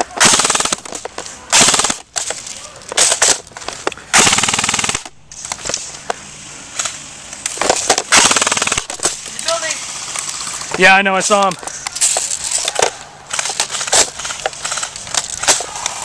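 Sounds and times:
airsoft rifle bursts: 0:00.0 - 0:02.3, 0:04.1 - 0:05.1, 0:07.7 - 0:09.8.

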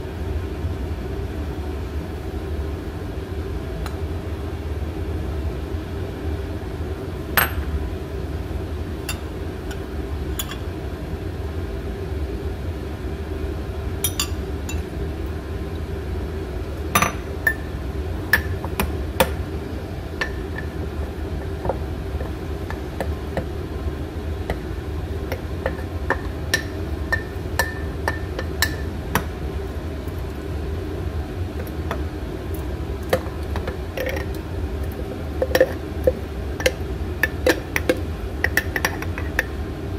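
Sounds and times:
steady low hum: 0:00.0 - 0:39.9
metal spoon clinking on glass: 0:10.4 - 0:10.6, 0:14.0 - 0:14.8.

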